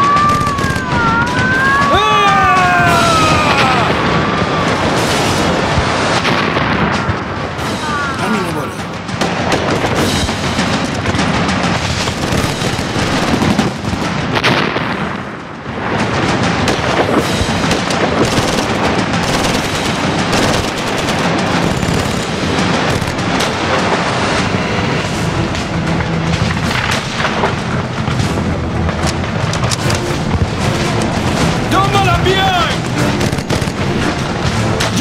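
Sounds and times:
gunfire: 0.0s - 8.2s, 8.8s - 35.0s
explosions: 0.0s - 35.0s
film music score: 0.0s - 35.0s.

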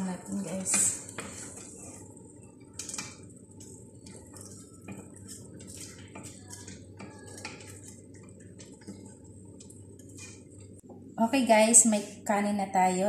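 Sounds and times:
spoon scraping metal bowl: 2.8s - 10.6s.

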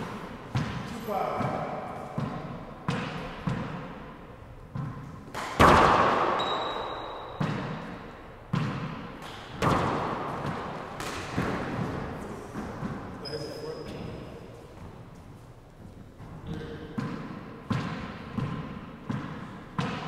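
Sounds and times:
hand slapping ball: 4.8s - 12.0s, 17.0s - 20.0s
handball smacking off walls: 4.8s - 13.1s, 17.0s - 20.0s.

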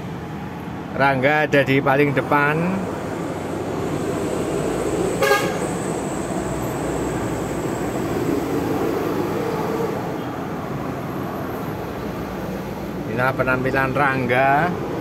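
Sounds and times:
road noise: 0.0s - 15.0s
wind: 0.0s - 15.0s
short horn toot: 5.2s - 5.7s.

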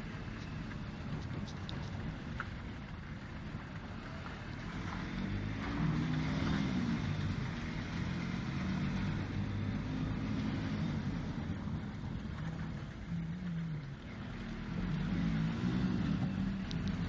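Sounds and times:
road noise: 0.0s - 17.0s
car engine running: 6.4s - 17.0s.

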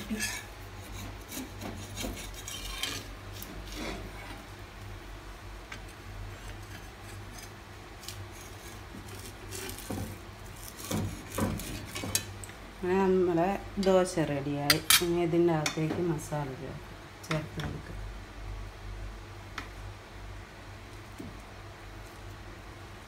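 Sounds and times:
metal spatula scraping pan: 0.0s - 4.4s
steady low hum: 0.0s - 23.0s.

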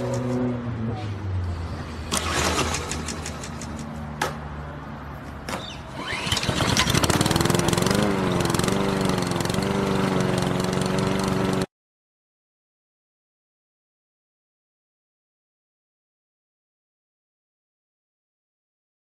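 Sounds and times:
lawn mower engine starting: 1.9s - 3.9s, 5.7s - 11.7s
starter cord pulls: 2.1s - 3.9s, 5.9s - 8.7s.

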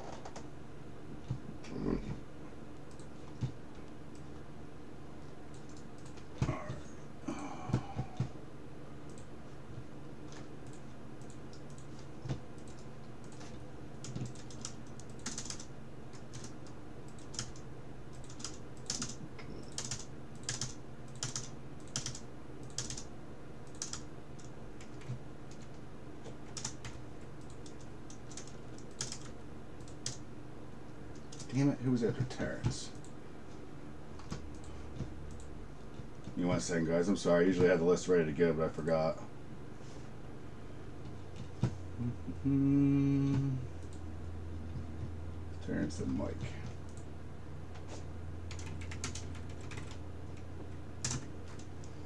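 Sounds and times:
typing on a computer keyboard: 5.5s - 6.2s, 10.3s - 25.8s, 26.4s - 30.2s, 48.5s - 50.4s, 51.0s - 51.9s.

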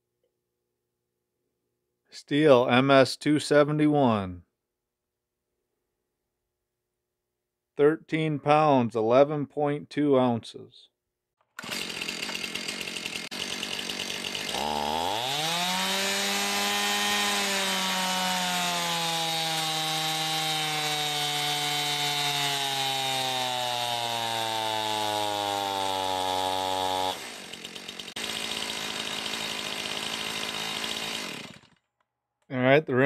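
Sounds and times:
chainsaw engine revving: 11.6s - 31.9s.

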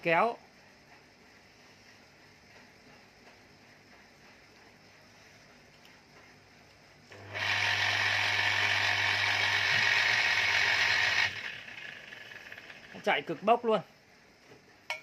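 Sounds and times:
electric motor humming and whirring: 7.1s - 13.4s.

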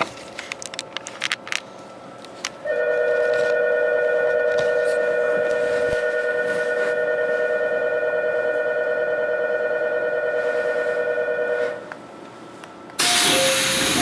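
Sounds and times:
two-note electronic bell tone: 2.7s - 11.8s.

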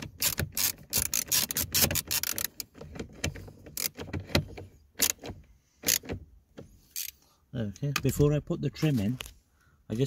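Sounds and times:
screwdriver clicking and scraping: 0.0s - 6.1s, 6.9s - 7.2s.

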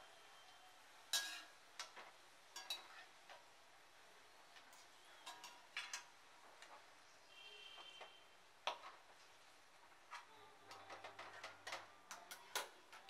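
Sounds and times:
metal spoon clinking on pan: 1.1s - 3.1s, 4.7s - 6.1s.

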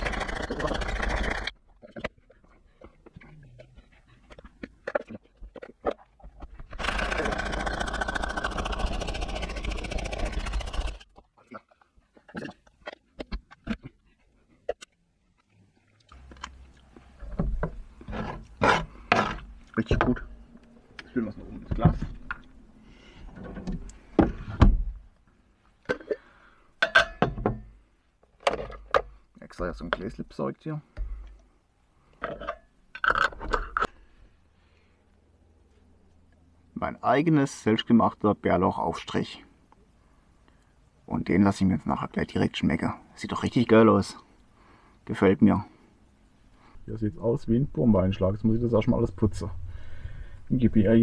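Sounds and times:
chopper whirring and rattling: 6.8s - 11.0s.

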